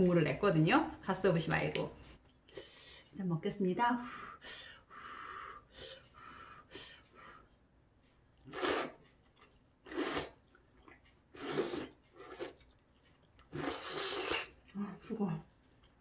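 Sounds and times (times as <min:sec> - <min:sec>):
person slurping noodles: 0:08.4 - 0:09.0, 0:09.8 - 0:10.4, 0:11.3 - 0:12.6, 0:13.5 - 0:14.7.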